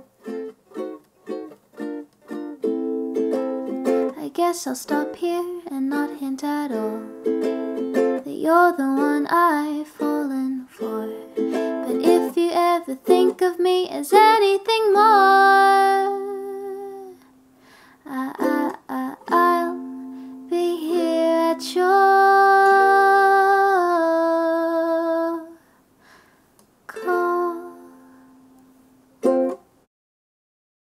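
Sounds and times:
ukulele: 0:00.0 - 0:17.5, 0:18.1 - 0:25.6, 0:26.9 - 0:29.9
woman singing held notes: 0:26.9 - 0:28.1.

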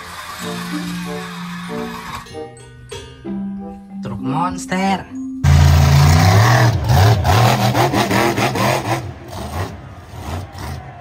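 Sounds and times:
monster truck engine revving: 0:05.4 - 0:11.0.

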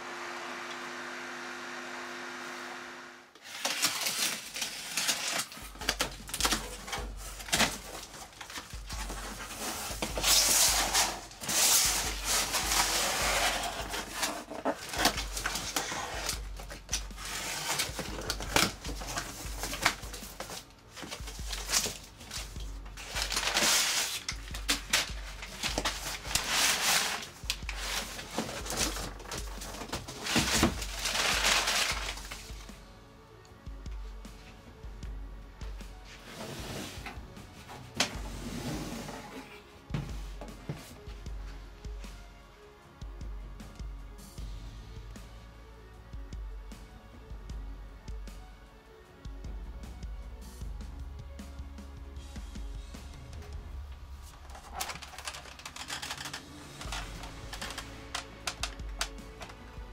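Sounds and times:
cardboard and tape rustling: 0:03.3 - 0:32.8, 0:54.0 - 0:59.9
background music with bass beat: 0:33.6 - 0:36.2, 0:39.8 - 0:54.6.

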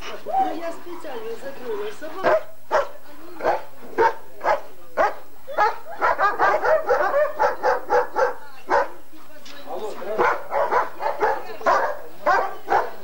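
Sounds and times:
dogs barking: 0:01.8 - 0:09.0, 0:10.0 - 0:13.0.

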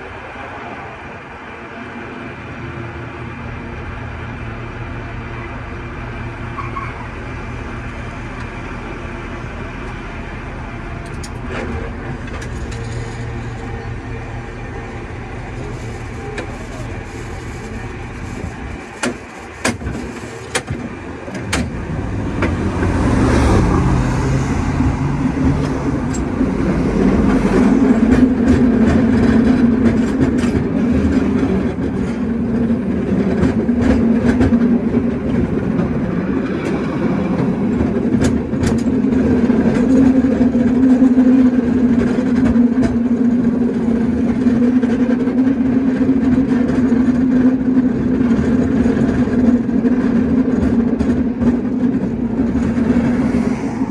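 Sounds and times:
cable car rumbling on rails: 0:00.0 - 0:53.9
cable car clanks: 0:09.4 - 0:23.0, 0:24.6 - 0:53.9
rattling clicks of rails: 0:09.6 - 0:53.9.

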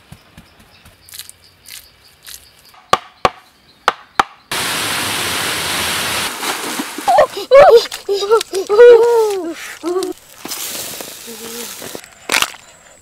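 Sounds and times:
splashing water: 0:04.6 - 0:09.0.

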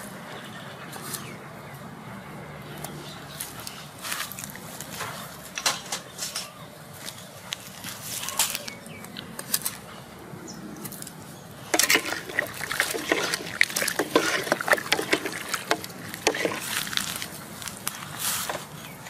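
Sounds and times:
water sloshing: 0:11.6 - 0:19.0
wooden ladle knocking a pot: 0:11.8 - 0:16.6.

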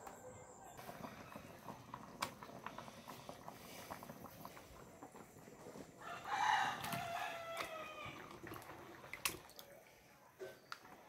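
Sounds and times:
soup bubbling at a boil: 0:00.2 - 0:11.0
rooster crowing: 0:06.0 - 0:08.2.

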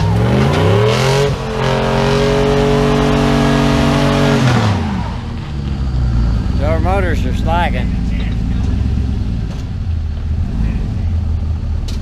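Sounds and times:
truck engine revving hard: 0:00.0 - 0:12.0.

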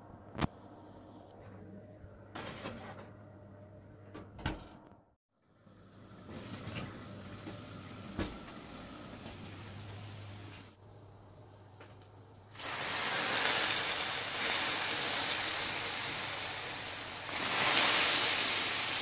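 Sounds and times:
steady hiss and low hum: 0:05.5 - 0:19.0.

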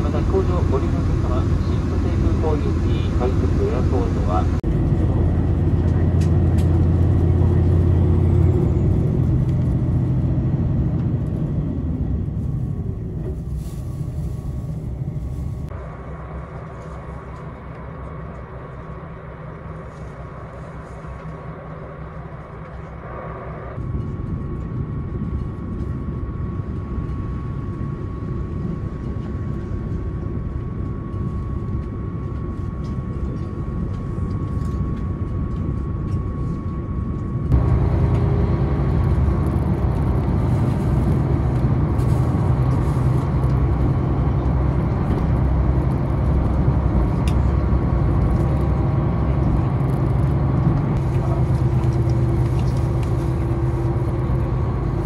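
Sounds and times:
low drone: 0:00.0 - 0:55.0
train wheels rumbling on rail: 0:00.0 - 0:55.0
faint steady whine: 0:12.4 - 0:44.8.

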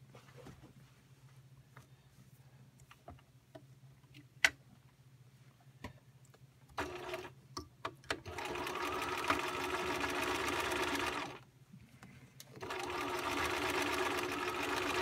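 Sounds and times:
sewing machine stitching: 0:06.8 - 0:07.3, 0:08.2 - 0:11.4, 0:12.6 - 0:15.0.

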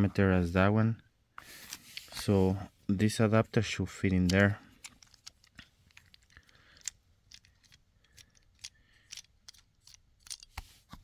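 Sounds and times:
clicks of plastic parts handled: 0:04.0 - 0:11.0.

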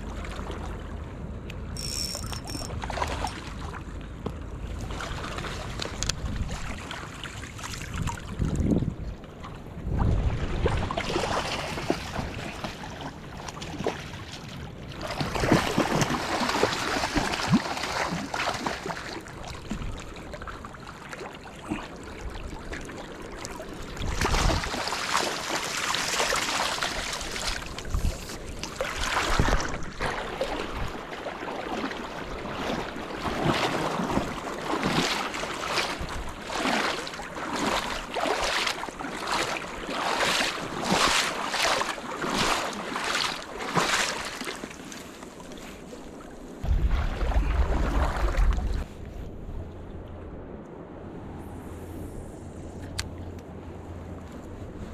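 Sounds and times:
wind buffeting microphone: 0:07.9 - 0:11.0, 0:23.9 - 0:24.8, 0:46.6 - 0:54.9
rushing river water: 0:10.4 - 0:49.0.

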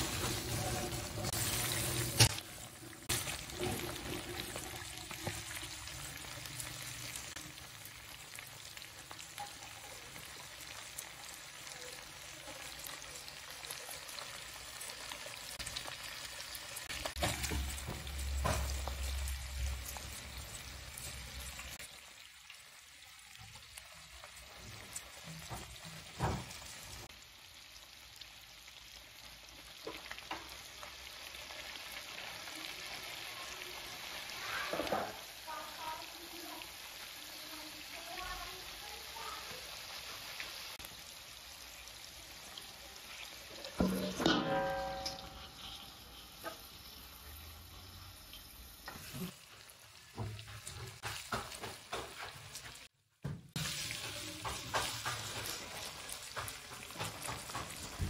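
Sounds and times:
food sizzling on a griddle: 0:00.0 - 0:58.0
metal spatula stirring on griddle: 0:43.1 - 0:47.0, 0:50.2 - 0:52.9, 0:53.6 - 0:58.0.

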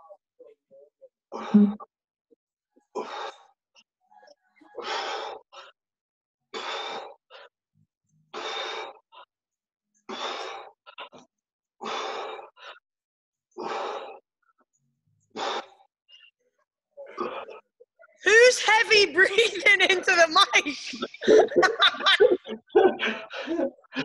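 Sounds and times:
person breathing heavily: 0:11.8 - 0:12.8, 0:13.6 - 0:14.2, 0:21.1 - 0:24.0.

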